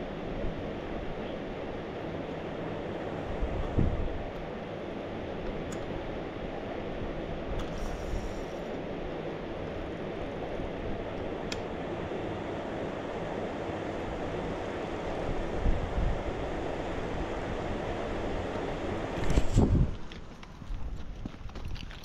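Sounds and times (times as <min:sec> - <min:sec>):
wind buffeting microphone: 0:03.2 - 0:04.3, 0:15.0 - 0:22.0.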